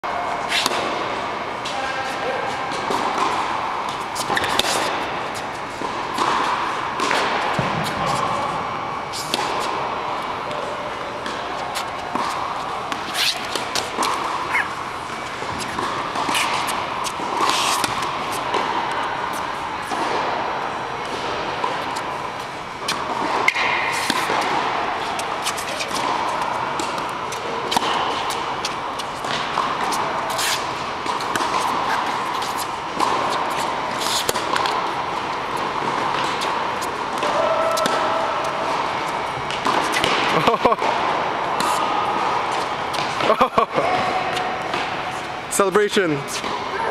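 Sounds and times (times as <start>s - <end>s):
racquets striking tennis ball: 0.4s - 1.9s, 2.5s - 46.9s
tennis ball bouncing: 2.7s - 45.4s.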